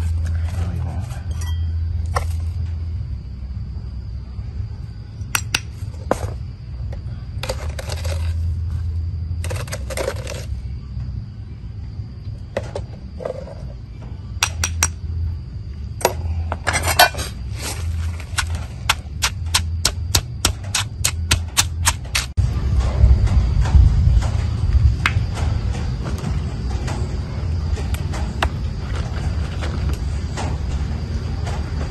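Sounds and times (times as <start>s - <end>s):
steady low hum: 0.0s - 31.9s
pestle pounding in stone mortar: 18.2s - 22.4s.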